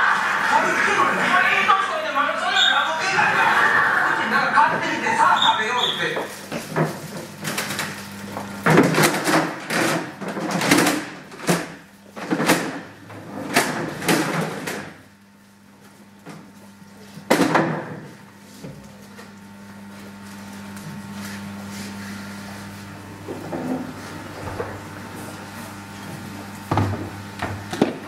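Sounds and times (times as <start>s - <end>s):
chairs scraping and clattering: 3.2s - 5.2s, 5.8s - 15.0s, 23.2s - 25.4s.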